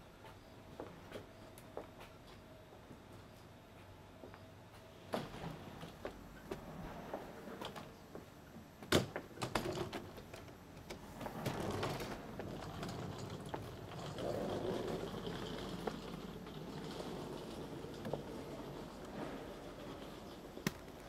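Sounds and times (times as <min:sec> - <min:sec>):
suitcase wheels rattling on paving: 0:11.4 - 0:21.0.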